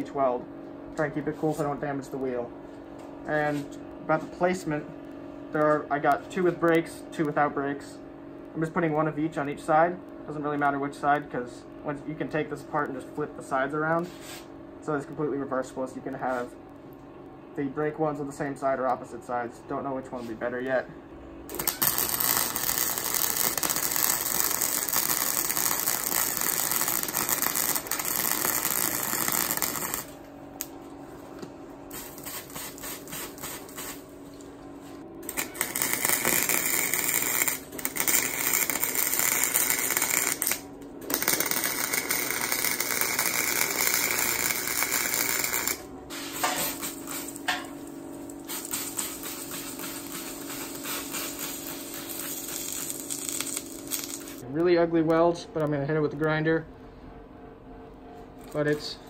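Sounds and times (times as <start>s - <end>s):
welder crackling: 21.5s - 30.8s, 31.9s - 34.4s, 35.2s - 54.5s.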